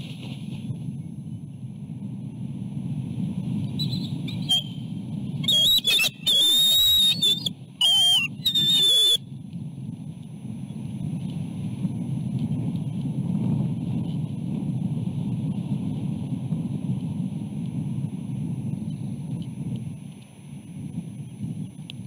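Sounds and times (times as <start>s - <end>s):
wind rumble on microphone: 0.0s - 22.0s
eagles whistled chatter calls: 3.7s - 9.2s.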